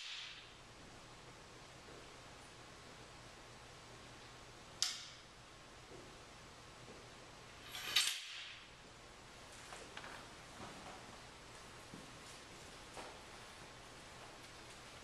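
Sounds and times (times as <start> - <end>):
sharp click: 4.8 - 5.2.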